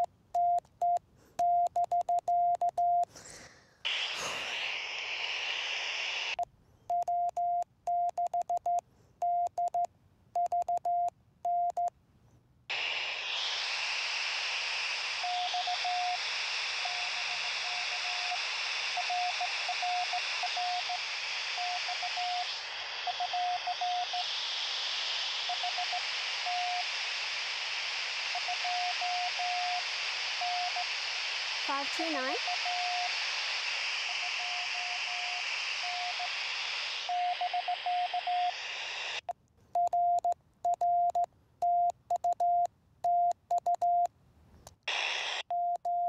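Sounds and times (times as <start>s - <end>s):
faint morse code: 0.0s - 3.1s, 6.9s - 11.9s, 15.2s - 16.2s, 16.8s - 24.3s, 25.4s - 26.9s, 39.7s - 44.1s
radio receiver hiss: 3.1s - 6.4s, 12.7s - 39.3s, 44.7s - 45.5s.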